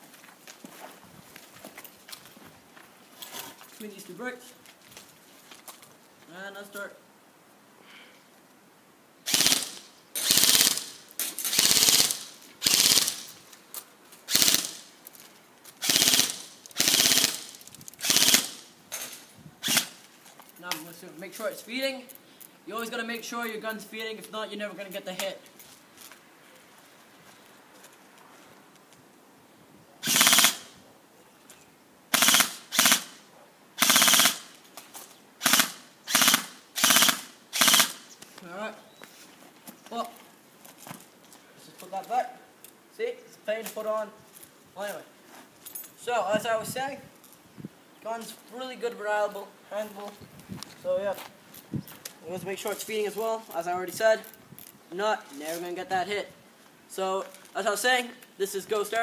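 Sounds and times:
electric airsoft gun bursts: 9.3 - 13.4, 14.3 - 14.9, 15.8 - 18.7, 19.6 - 20.0, 30.0 - 30.8, 32.1 - 33.2, 33.8 - 34.6, 35.4 - 38.1.

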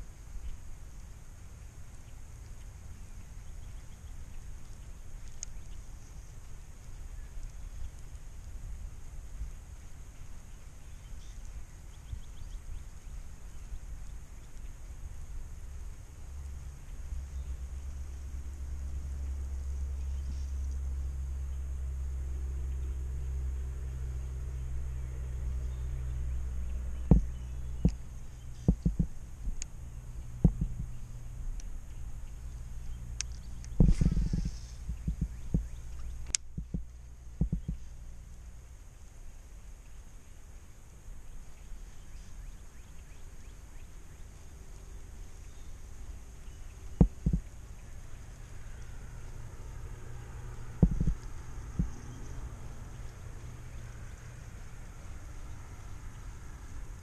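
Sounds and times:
faint bird chirps: 0.0 - 40.4, 41.1 - 57.0
wind rumbling on microphone: 0.0 - 57.0
wind buffeting microphone: 25.7 - 29.6, 30.3 - 32.1, 33.0 - 37.8, 46.8 - 47.6, 50.6 - 53.2
short dull thumps: 27.1 - 28.0, 28.6 - 29.6, 30.4 - 30.9, 33.8 - 35.7, 36.3 - 37.8, 47.0 - 47.4, 50.8 - 51.2.

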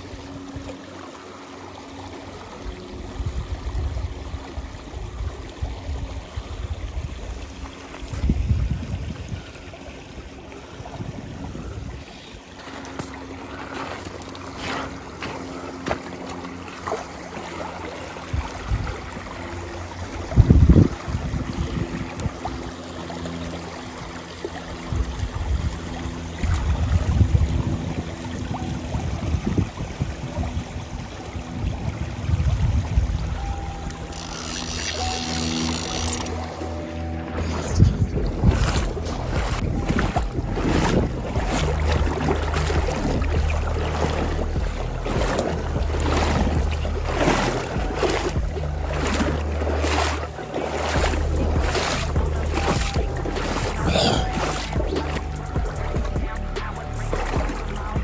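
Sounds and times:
stream flowing over gravel: 0.0 - 58.0
low rumbles: 35.0 - 58.0.

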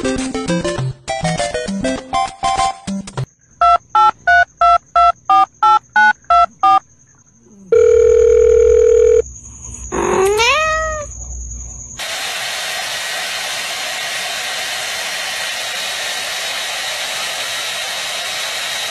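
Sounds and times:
telephone keypad beeps: 3.6 - 6.8
telephone ringing tone: 7.7 - 9.2
cat meowing: 9.9 - 11.1.

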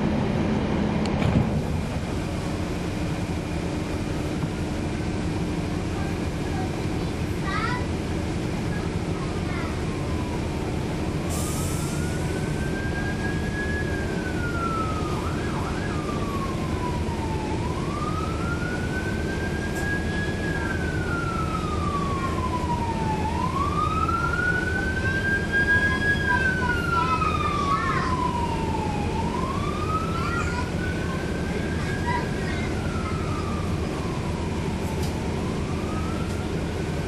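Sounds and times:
bus diesel engine drone: 0.0 - 37.0
siren wailing: 11.8 - 37.0.

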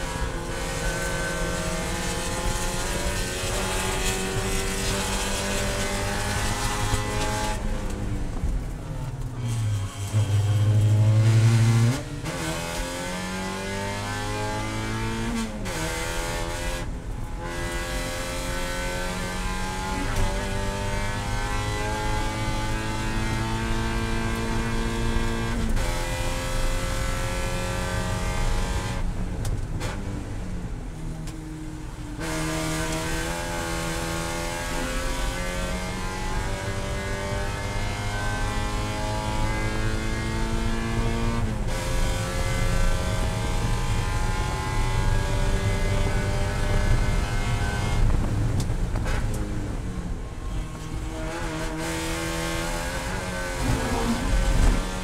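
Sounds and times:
car engine revving: 0.0 - 30.4, 32.2 - 55.0.

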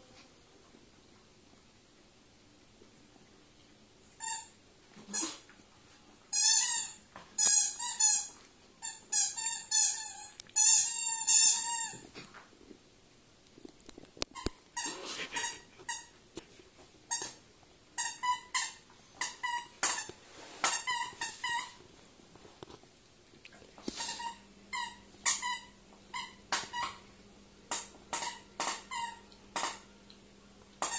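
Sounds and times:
squeaky dog toy squeaking: 4.2 - 4.5, 6.3 - 12.0, 18.0 - 20.1, 20.7 - 21.8, 24.0 - 27.0, 27.7 - 29.8.

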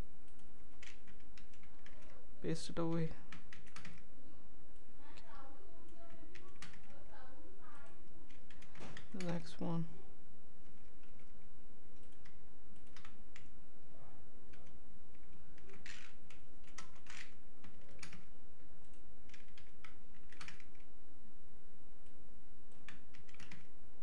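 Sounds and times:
steady background hum: 0.0 - 24.0
keyboard keystrokes clicking: 0.2 - 2.2, 3.3 - 4.1, 6.0 - 6.9, 8.3 - 9.5, 12.0 - 13.5, 14.5 - 20.9, 22.0 - 23.7.

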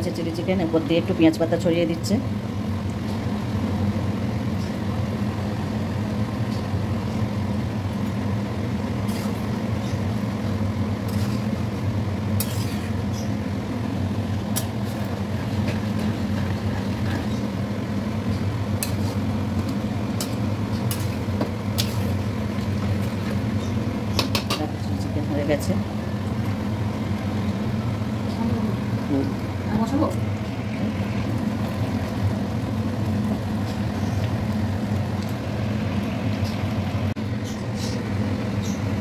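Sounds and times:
low mechanical hum: 0.0 - 39.0
metal spoon scraping a pan: 11.1 - 11.5, 12.4 - 13.0, 18.8 - 19.2.

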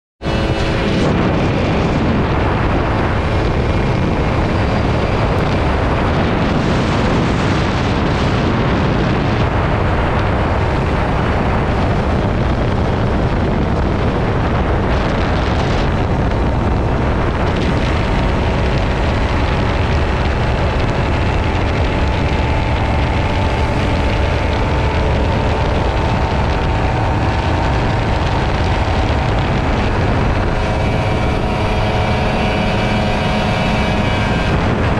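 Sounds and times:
motorcycle engine running: 0.2 - 34.9
wind rushing over microphone: 0.2 - 34.9.

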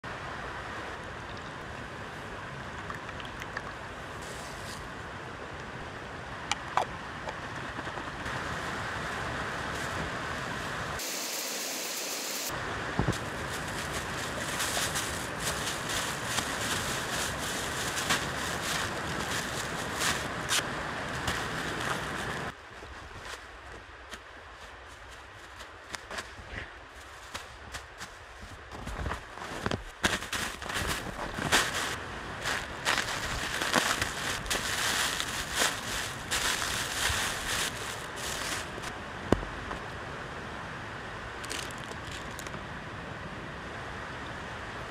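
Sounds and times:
creek rushing: 8.2 - 22.6, 30.0 - 40.1.

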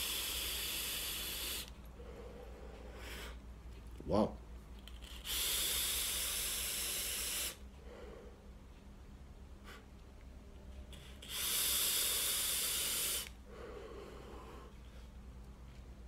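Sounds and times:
vape hiss of air drawn through coil: 0.0 - 1.8, 4.9 - 7.6, 11.0 - 13.4
faint exhale: 0.0 - 3.4.

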